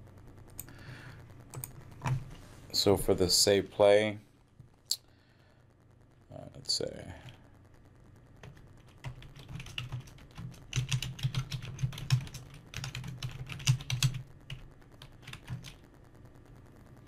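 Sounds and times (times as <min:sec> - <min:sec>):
computer keyboard typing: 0:00.6 - 0:02.4, 0:08.4 - 0:15.8.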